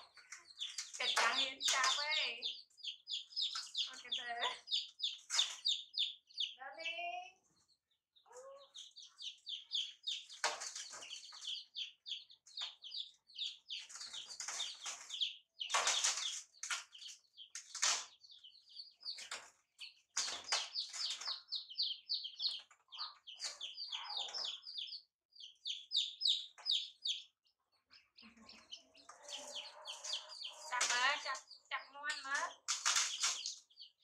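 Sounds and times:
baby chicks peeping: 0:00.0 - 0:34.0
chicks scrabbling in metal basin: 0:00.0 - 0:34.0.

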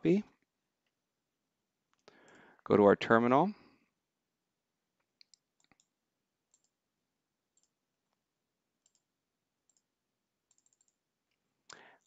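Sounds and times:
computer mouse clicks: 0:05.0 - 0:06.8, 0:07.6 - 0:08.2, 0:08.8 - 0:09.1, 0:09.7 - 0:09.9, 0:10.5 - 0:11.0.

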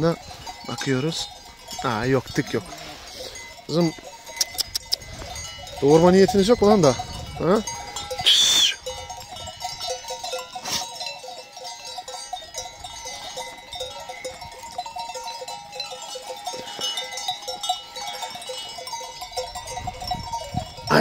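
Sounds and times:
sheep bells clanking: 0:00.0 - 0:21.0.

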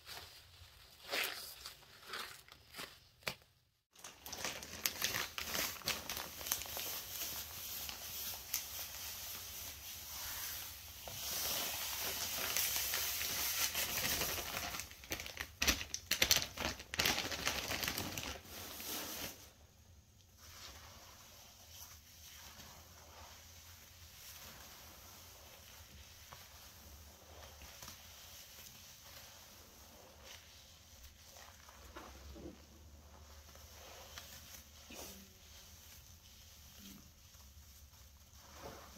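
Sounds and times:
bag crinkling: 0:04.0 - 0:07.0, 0:13.5 - 0:19.0.

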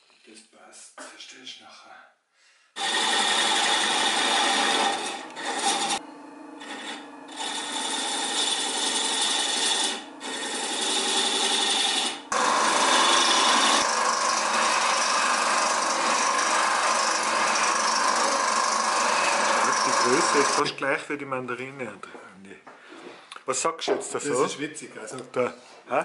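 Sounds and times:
hand scraper rasping on wood: 0:02.8 - 0:06.0, 0:06.6 - 0:20.6
sanding machine running: 0:02.8 - 0:20.6
wood lathe spinning: 0:02.8 - 0:20.7.

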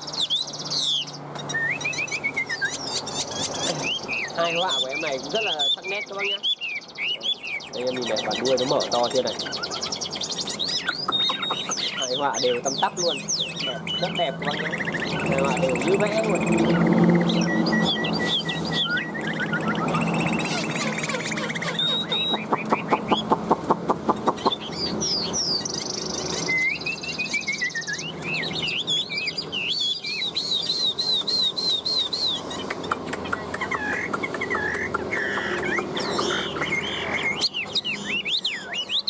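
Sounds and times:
bird singing whistled phrases: 0:00.0 - 0:23.4, 0:24.2 - 0:32.8, 0:33.5 - 0:39.0.

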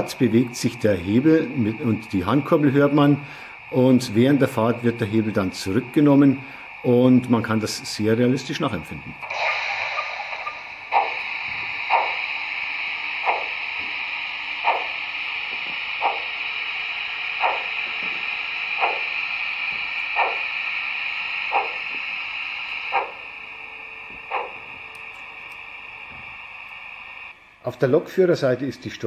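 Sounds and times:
model steam locomotive chuffs: 0:00.0 - 0:29.0
steady steam hiss: 0:00.0 - 0:29.0.

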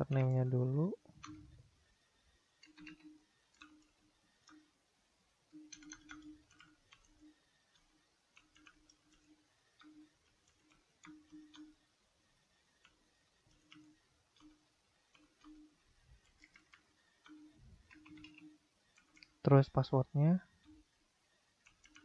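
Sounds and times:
keyboard typing: 0:01.1 - 0:01.6, 0:02.6 - 0:04.7, 0:05.5 - 0:11.8, 0:12.7 - 0:19.4, 0:21.6 - 0:22.0.

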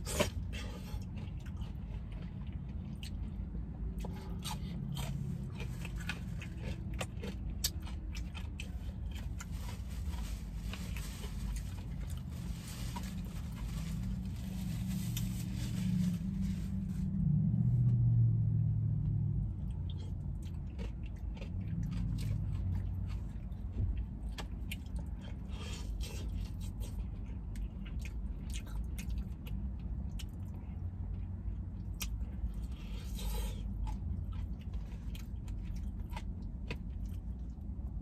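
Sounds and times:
biting and chewing: 0:00.0 - 0:14.4, 0:19.1 - 0:38.0
steady low hum: 0:00.0 - 0:38.0
crisp crackles of fried chicken: 0:04.1 - 0:16.9.

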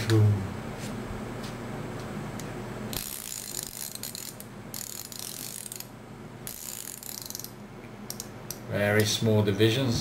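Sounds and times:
ratchet spanner clicking: 0:02.9 - 0:05.9, 0:06.5 - 0:08.6.

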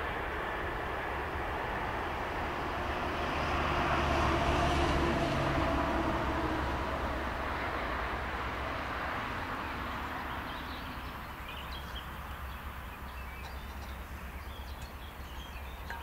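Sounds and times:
small birds chirping: 0:09.6 - 0:16.0.

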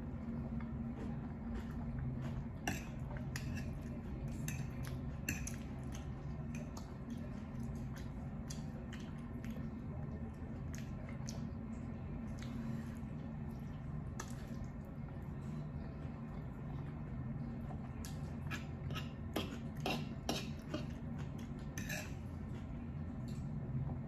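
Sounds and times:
steady low hum: 0:00.0 - 0:24.0
chewing: 0:00.4 - 0:11.6, 0:12.2 - 0:23.5
fork clinking and scraping on plate: 0:21.8 - 0:22.2.

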